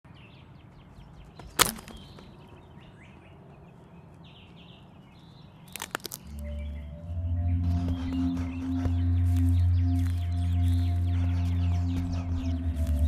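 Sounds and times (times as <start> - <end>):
faint bird chirps: 0.1 - 13.0
boot stepping on dry twigs: 1.5 - 2.2, 5.6 - 6.6, 8.7 - 13.0
low held music tone: 6.2 - 13.0.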